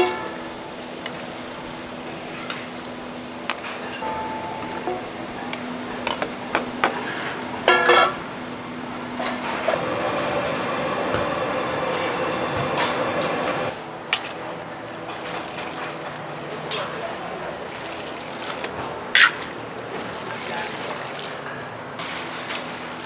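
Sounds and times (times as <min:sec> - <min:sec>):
ringing metallic clang: 0:03.8 - 0:06.2.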